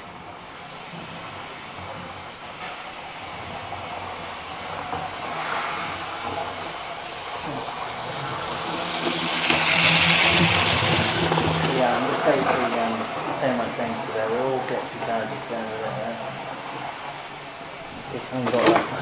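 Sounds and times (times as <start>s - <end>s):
model train motor whirring: 2.6s - 13.2s.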